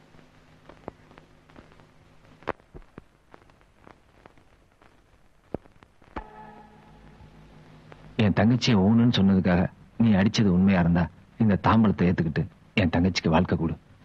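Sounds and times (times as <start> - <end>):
faint hum: 0.0 - 14.0
faint clicks and ticks: 0.1 - 6.2
faint held tone: 6.2 - 8.2.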